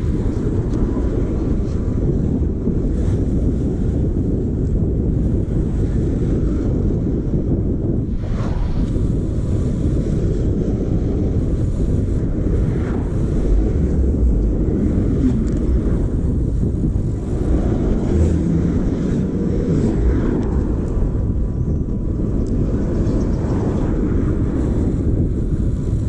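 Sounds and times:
wind rumble on microphone: 0.0s - 26.0s
city traffic: 14.8s - 21.3s.

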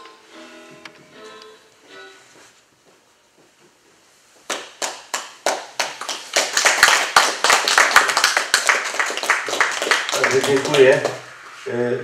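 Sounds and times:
audience clapping: 4.5s - 11.3s.

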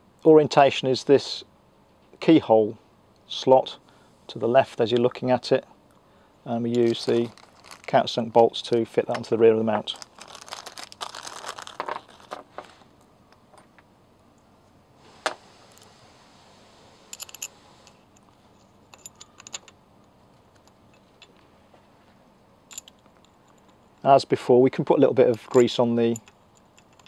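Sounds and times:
plastic bag rustling: 6.8s - 8.4s, 9.3s - 13.0s.

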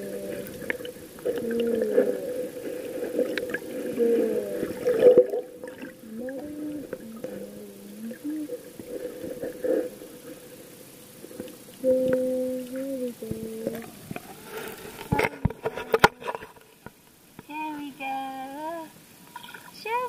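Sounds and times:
water gurgling underwater: 0.0s - 15.9s
steady hum: 0.0s - 20.0s.

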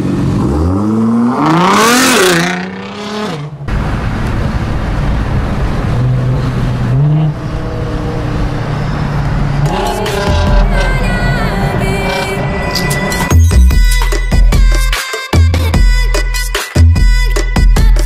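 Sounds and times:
car engine accelerating hard: 0.0s - 13.3s
road noise: 0.0s - 14.4s
engine drone at highway speed: 0.0s - 14.8s.

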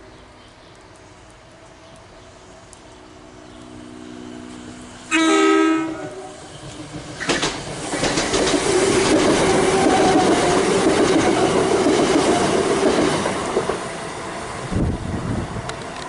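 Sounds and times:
wheel and rail rushing noise: 0.2s - 16.0s
train horn blast: 3.6s - 6.6s
clicks over rail joints: 6.7s - 10.0s.

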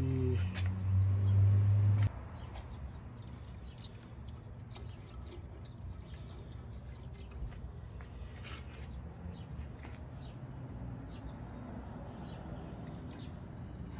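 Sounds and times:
liquid trickling into a beaker: 3.2s - 7.8s
faint drips and ticks: 3.2s - 8.1s.

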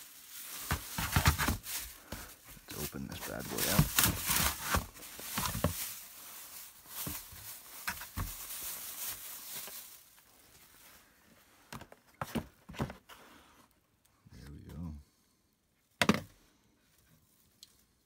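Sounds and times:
cardboard box rustling and scraping: 0.6s - 2.4s, 3.2s - 6.0s.

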